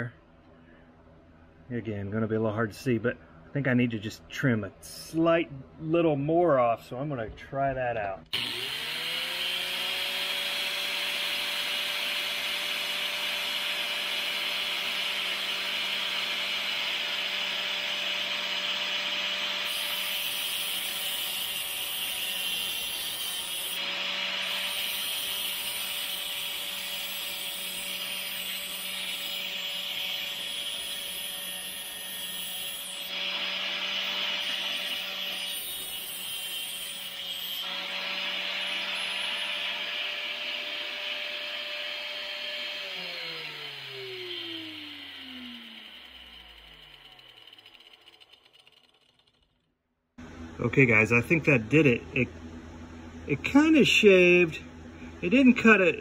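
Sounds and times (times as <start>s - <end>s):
grinder cutting steel: 8.3s - 49.7s.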